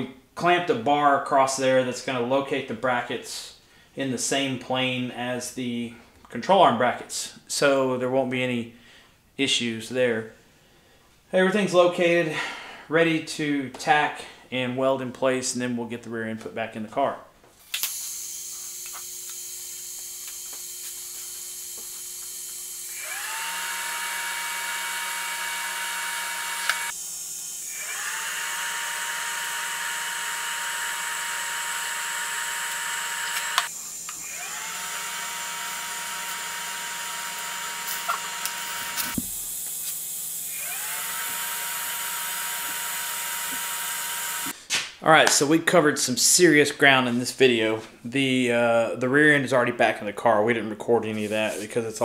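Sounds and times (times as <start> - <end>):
arc welder hissing and whining: 17.7 - 44.6.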